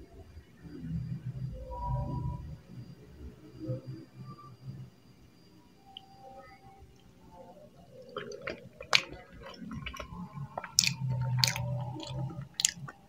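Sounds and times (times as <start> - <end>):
chewing with wet mouth sounds: 7.8 - 13.0
lip smacks: 8.0 - 13.0.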